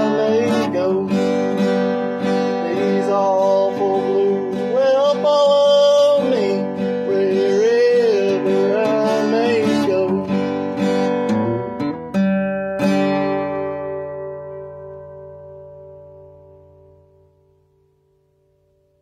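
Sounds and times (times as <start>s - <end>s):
man singing: 0.0s - 11.8s
acoustic guitar strumming: 0.0s - 19.0s.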